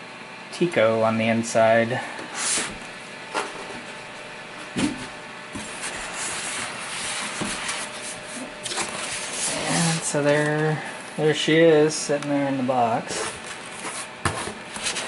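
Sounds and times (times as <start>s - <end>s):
polystyrene foam rubbing and scraping: 5.6s - 10.5s, 13.1s - 15.0s.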